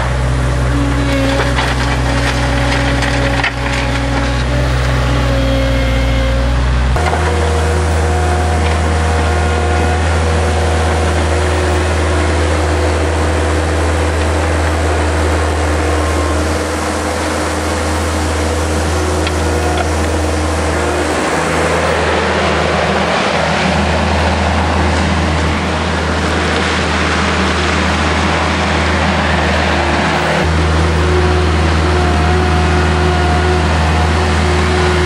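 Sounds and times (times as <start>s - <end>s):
diesel engine running: 0.0s - 35.0s
bucket scraping through gravel: 1.1s - 4.6s.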